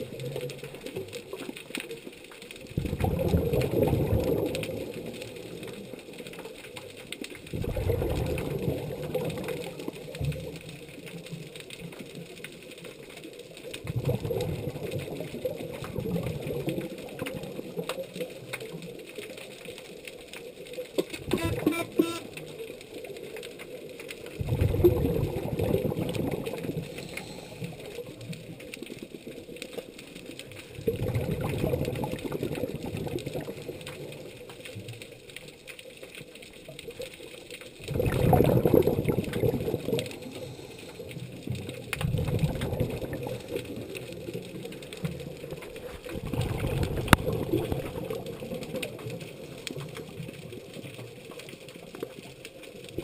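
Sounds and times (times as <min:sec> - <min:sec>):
underwater regulator exhalation bubbles: 0:02.8 - 0:05.1, 0:07.5 - 0:09.6, 0:21.2 - 0:22.3, 0:24.4 - 0:27.8, 0:30.8 - 0:33.8, 0:37.9 - 0:40.6, 0:41.9 - 0:44.0, 0:45.9 - 0:49.0.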